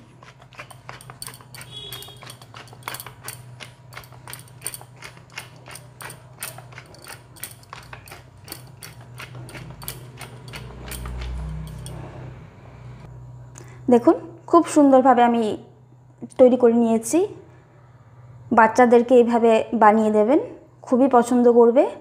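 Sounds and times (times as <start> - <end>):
pepper mill ratcheting clicks: 0.5 - 11.9.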